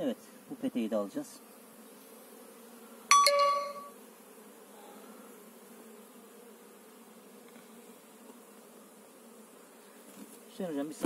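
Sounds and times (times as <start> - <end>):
bees humming: 0.0 - 11.0
metallic clink ringing: 3.1 - 3.9.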